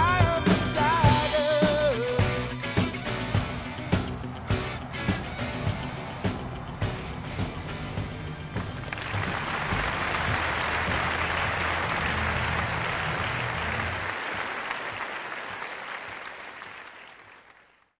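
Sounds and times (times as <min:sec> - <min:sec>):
applause: 0:04.3 - 0:18.0.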